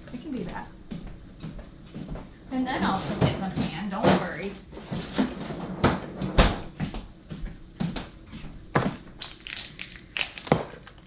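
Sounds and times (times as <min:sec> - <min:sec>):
plastic packaging crinkling: 0:09.1 - 0:11.0.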